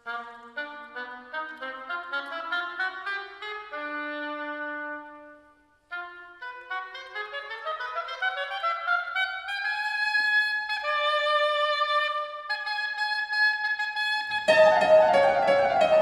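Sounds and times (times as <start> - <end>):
oboe playing: 5.9 - 16.0
piano chords: 14.4 - 16.0.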